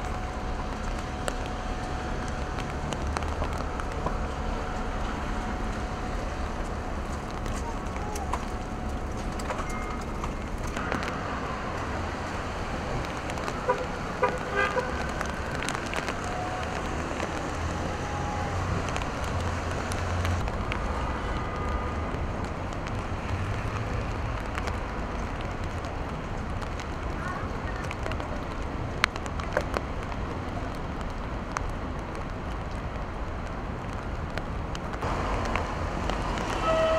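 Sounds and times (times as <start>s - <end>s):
traffic on wet roads: 0.0s - 36.9s
short car horn toots: 36.6s - 36.9s.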